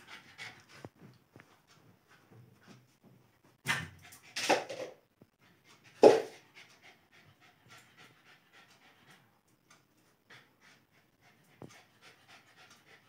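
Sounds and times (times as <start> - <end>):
puppy panting: 0.0 - 1.2, 5.4 - 13.0.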